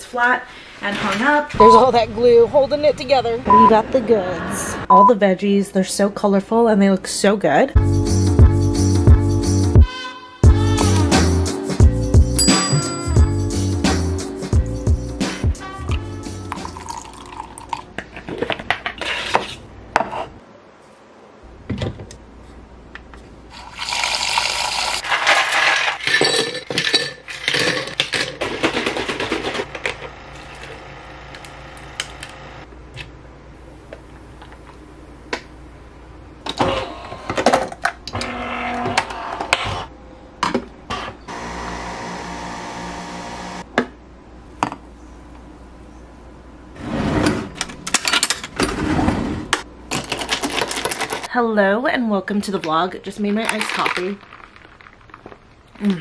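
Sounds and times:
ice clinking in glass: 16.5s - 17.8s
milk pouring: 16.5s - 17.9s, 23.5s - 25.3s
coffee machine running: 29.2s - 32.6s, 41.3s - 43.6s.

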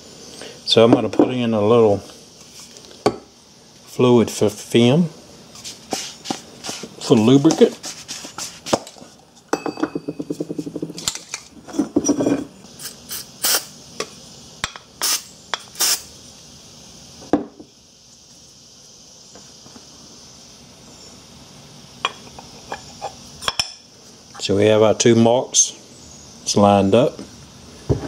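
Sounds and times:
aerosol can spraying: 5.5s - 9.1s, 12.7s - 14.2s, 15.0s - 16.2s
parts clattering on workbench: 8.6s - 12.5s.

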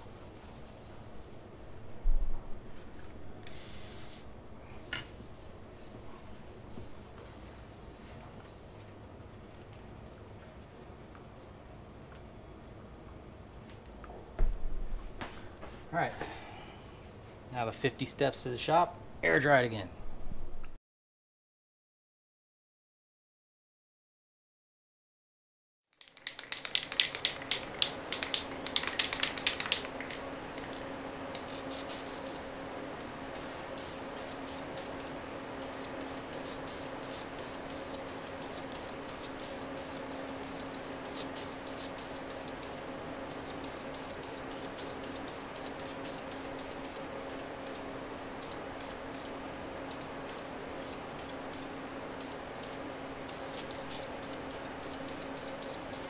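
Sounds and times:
steady hum: 0.0s - 20.8s, 26.2s - 56.0s
aerosol paint spraying hiss: 3.5s - 4.3s, 31.4s - 32.5s, 33.3s - 47.8s, 48.4s - 56.0s
rapid clicking: 26.0s - 30.8s.

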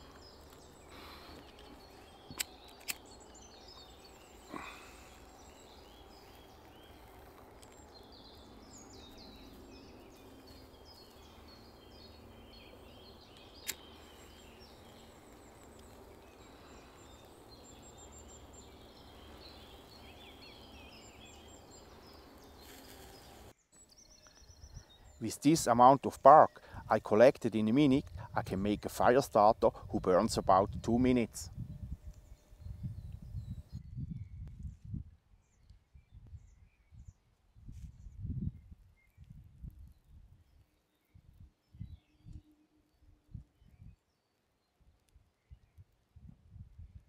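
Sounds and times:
small birds chirping: 0.0s - 34.5s
lighter flint clicks: 2.3s - 3.1s, 13.4s - 14.6s.

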